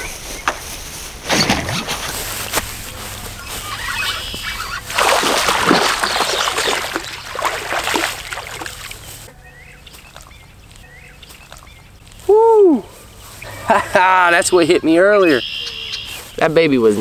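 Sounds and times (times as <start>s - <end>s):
faint bird chirps: 3.4s - 4.8s, 14.8s - 16.4s
fish splashing in water: 3.8s - 9.1s.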